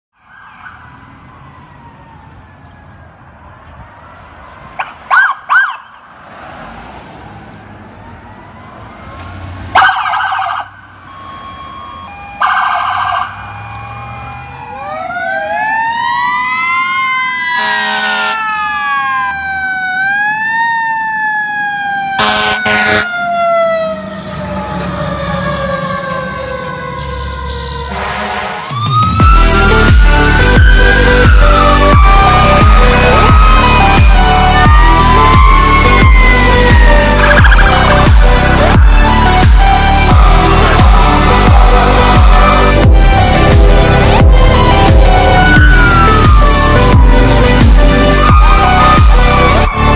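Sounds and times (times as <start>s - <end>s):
mechanical siren howling: 0.2s - 5.9s, 9.8s - 49.9s
electronic siren wailing: 9.8s - 49.9s
air horn blasts: 17.6s - 18.5s, 22.2s - 23.2s, 27.9s - 28.8s, 40.1s - 45.5s.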